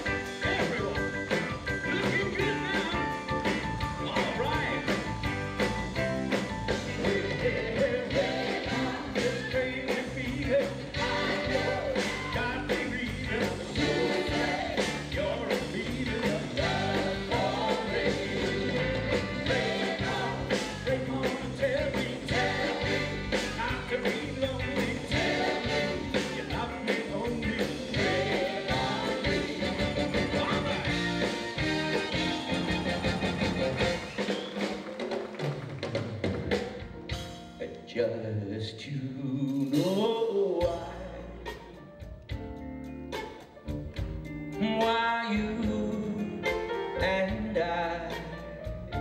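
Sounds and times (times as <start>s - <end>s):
drum beat: 0.0s - 37.1s
keyboards: 0.0s - 49.0s
man singing into a microphone: 9.2s - 14.4s, 15.0s - 17.9s, 20.5s - 31.0s, 37.6s - 41.5s, 44.6s - 48.6s.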